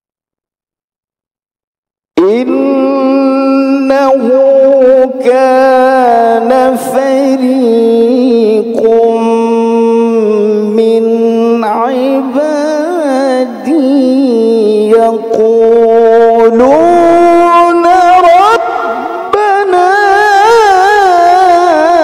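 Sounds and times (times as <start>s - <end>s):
man chanting into a microphone: 2.2s - 22.0s.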